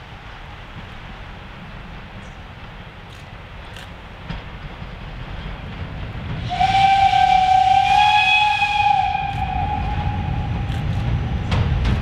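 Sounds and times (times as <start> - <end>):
train rumbling: 0.0 - 12.0
steam hissing: 6.1 - 12.0
steam whistle blast: 6.4 - 10.7.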